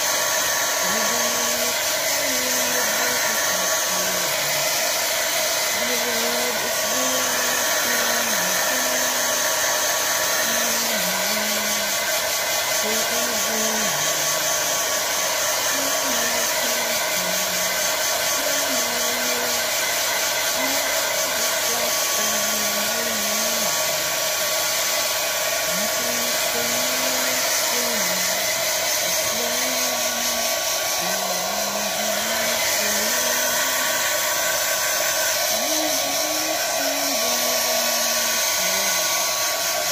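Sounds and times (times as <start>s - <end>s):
hair dryer blowing: 0.0s - 39.9s.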